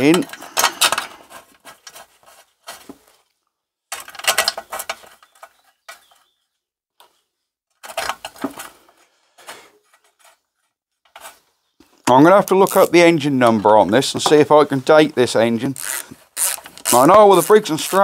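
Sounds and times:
metal bolts clicking and rattling: 3.9 - 5.6.

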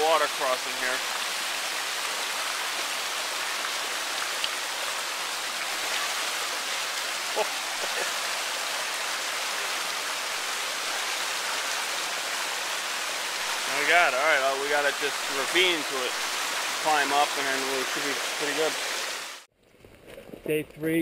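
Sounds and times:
stream rushing over stones: 0.0 - 19.5.

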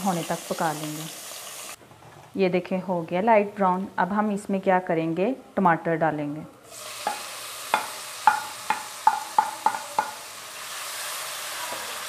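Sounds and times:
vegetables sizzling in oil: 0.0 - 1.8, 6.7 - 12.0
spatula knocking on wok: 7.0 - 10.2.

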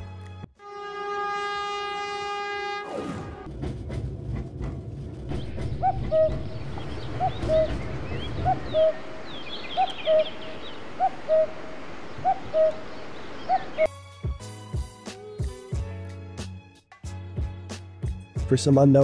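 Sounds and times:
low rumble: 3.4 - 13.8
higher bird chirps: 5.3 - 13.9
bird two-note cooing call: 5.7 - 13.9.

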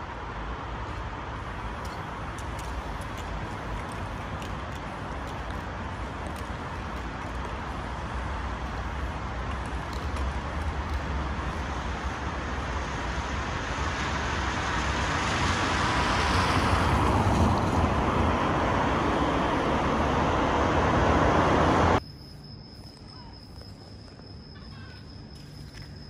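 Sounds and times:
car passing by: 0.0 - 22.0.

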